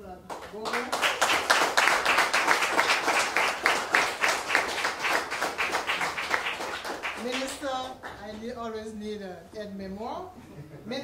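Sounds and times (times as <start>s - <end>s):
people applauding: 0.3s - 8.4s.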